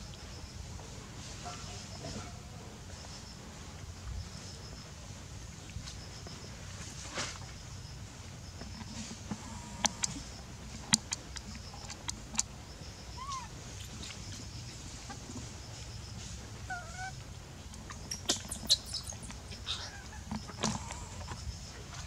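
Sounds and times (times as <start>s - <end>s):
low steady rumble: 0.0s - 22.0s
animal calls: 13.0s - 15.3s, 16.6s - 22.0s.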